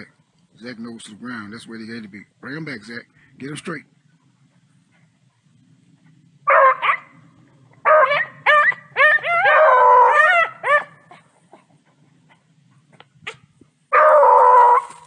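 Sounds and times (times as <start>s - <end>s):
dogs baying: 4.5s - 15.0s.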